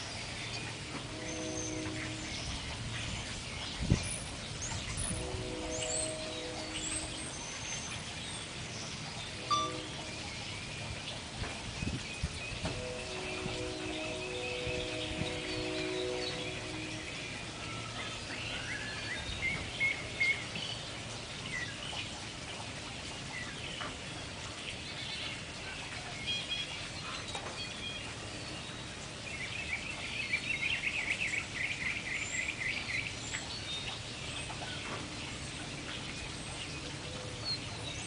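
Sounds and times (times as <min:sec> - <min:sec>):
songbirds chirping: 0:00.0 - 0:38.0
fast trilled birdsong: 0:05.2 - 0:11.0.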